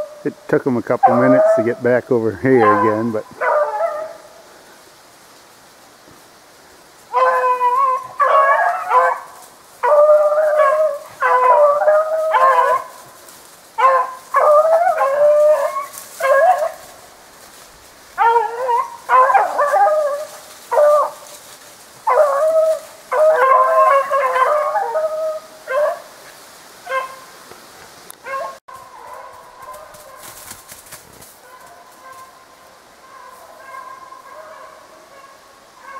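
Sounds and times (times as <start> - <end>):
dogs baying: 0.9 - 4.4, 7.1 - 13.2, 13.8 - 17.1, 18.1 - 21.4, 22.0 - 26.1, 28.2 - 30.8, 31.4 - 35.9.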